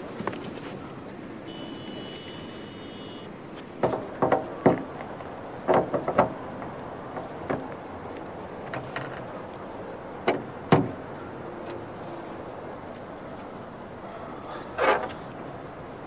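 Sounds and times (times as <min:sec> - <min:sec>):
clicks and knocks on meter cabinet: 0:03.8 - 0:07.8.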